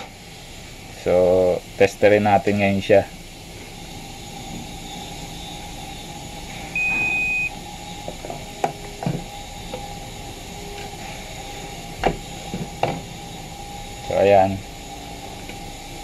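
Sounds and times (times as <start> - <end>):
multimeter beep: 6.7 - 7.6.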